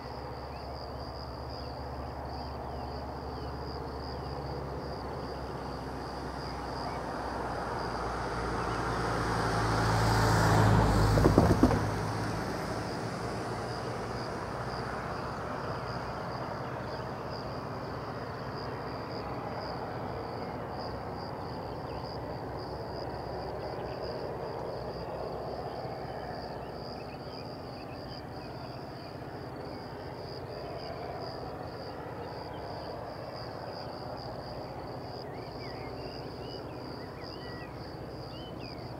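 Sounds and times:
crickets chirping: 0:00.0 - 0:38.9
motor vehicle passing: 0:07.6 - 0:14.7.

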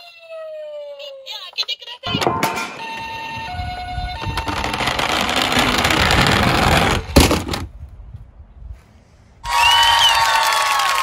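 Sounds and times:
toy wheels rattling on wooden ramp: 0:02.1 - 0:07.7.

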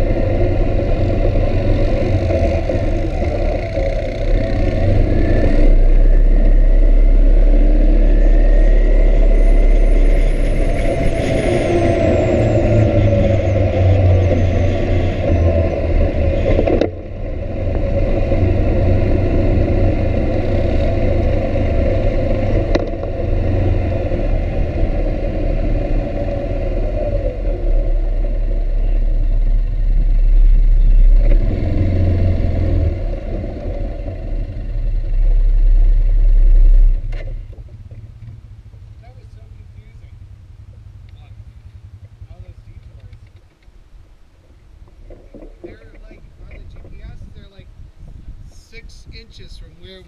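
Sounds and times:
small vehicle engine running: 0:00.0 - 0:43.7
wind rush: 0:45.8 - 0:50.0.

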